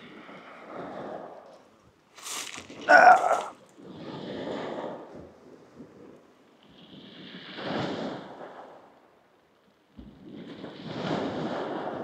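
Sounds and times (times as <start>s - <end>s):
waves breaking on shingle: 2.2s - 3.6s.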